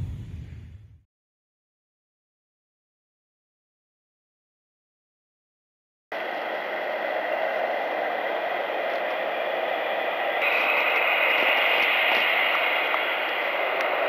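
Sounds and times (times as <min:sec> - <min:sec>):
jet engines at takeoff: 0:06.1 - 0:14.0.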